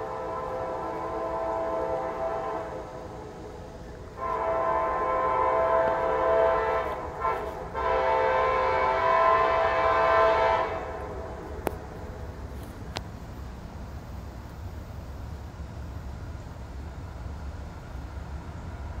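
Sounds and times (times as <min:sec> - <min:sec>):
train air horn blasts: 0:00.0 - 0:12.2.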